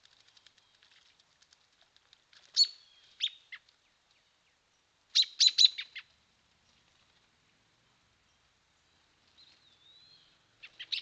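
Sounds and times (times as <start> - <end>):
songbird chirping: 2.4 - 11.0.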